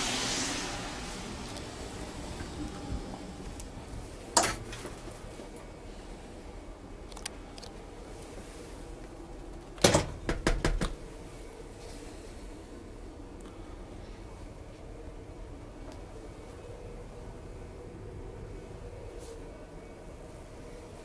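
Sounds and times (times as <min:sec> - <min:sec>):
train carriage hum: 0:00.0 - 0:21.0
sharp knocks: 0:09.9 - 0:11.0.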